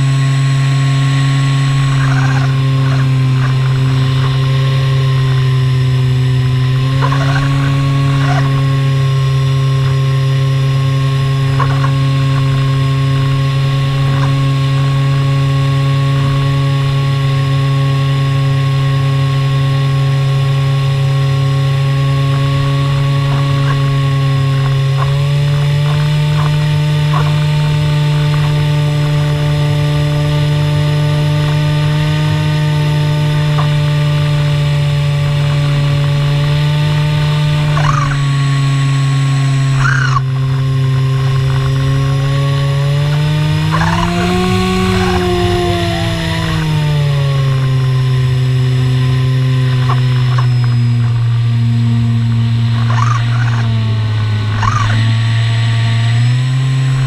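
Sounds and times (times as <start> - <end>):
model plane motor droning: 0.0 - 57.0
wind noise: 20.4 - 57.0.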